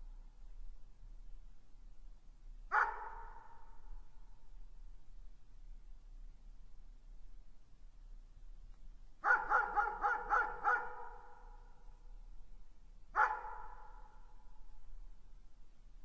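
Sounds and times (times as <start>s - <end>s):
dog barking: 2.7s - 3.7s, 9.2s - 11.7s, 13.2s - 14.3s.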